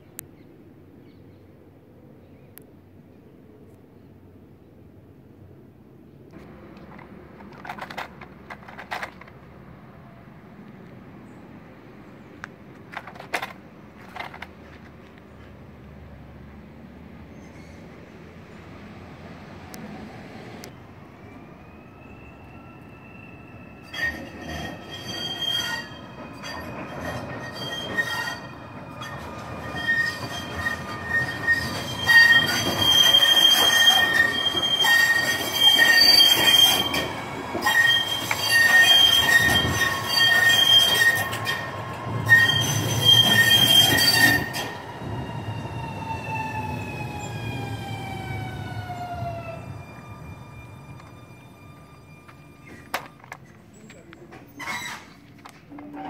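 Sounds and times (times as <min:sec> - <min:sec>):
tram wheels squealing on rails: 0:06.4 - 0:09.4, 0:12.7 - 0:15.5, 0:17.2 - 0:56.0.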